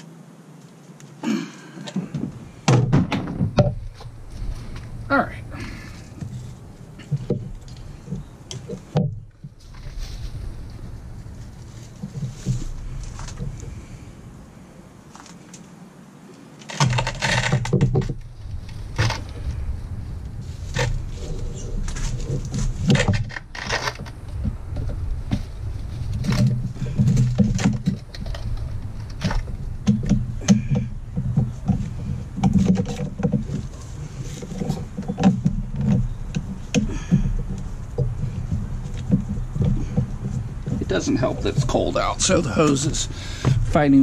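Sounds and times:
low uneven rumble: 1.3 - 16.3, 17.4 - 44.0.

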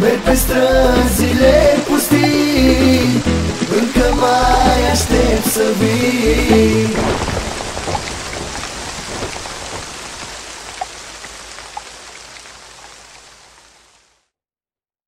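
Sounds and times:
rain patter: 0.0 - 14.3.

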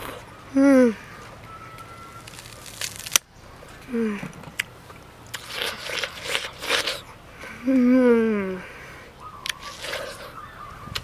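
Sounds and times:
chewing crisp watermelon: 0.0 - 0.3, 1.5 - 7.2, 9.4 - 11.0
person humming: 0.0 - 1.0, 7.6 - 8.6.

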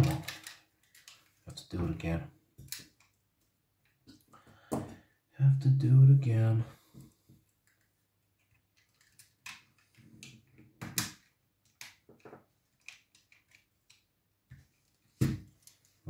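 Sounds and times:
plastic parts clicking and tapping: 0.0 - 1.4, 2.6 - 3.2, 7.0 - 16.0.

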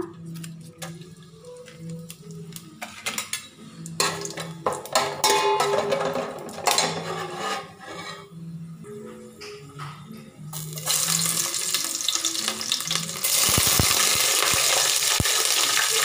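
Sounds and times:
metal spoon scraping a pot: 5.0 - 8.4
spices sizzling in hot oil: 10.6 - 16.0.

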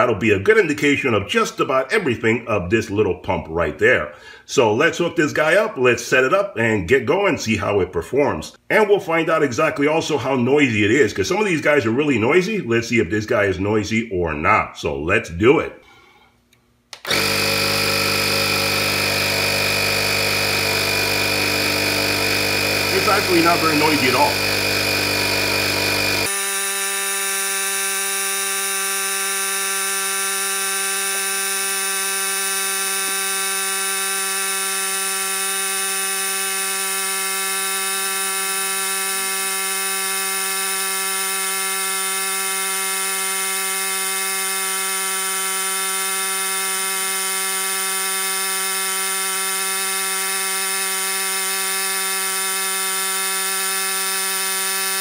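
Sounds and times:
tire inflator compressor buzzing: 16.9 - 55.0.

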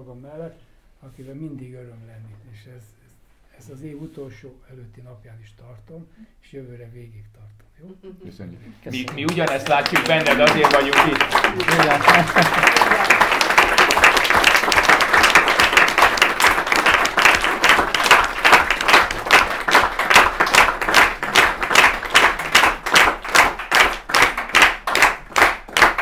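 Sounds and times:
crowd applauding: 8.9 - 26.0
rhythmic clapping in unison: 8.9 - 26.0.

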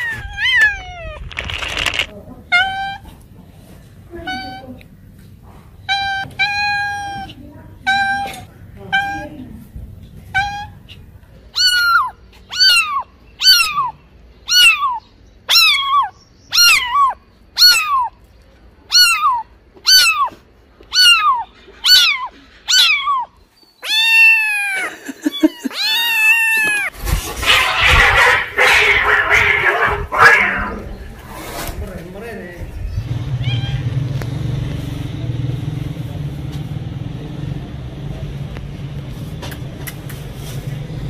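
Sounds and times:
kitten meowing: 0.0 - 2.0, 11.5 - 18.2, 18.9 - 26.9, 27.5 - 31.0, 33.4 - 33.9
cat hissing: 18.9 - 31.7.

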